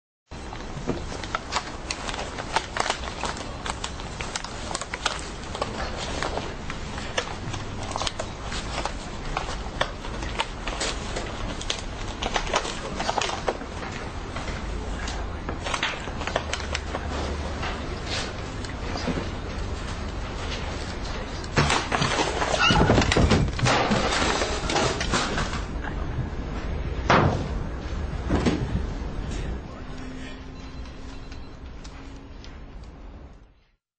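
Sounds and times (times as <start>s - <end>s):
paper rustling: 0.4s - 25.8s
low steady hum: 0.4s - 33.8s.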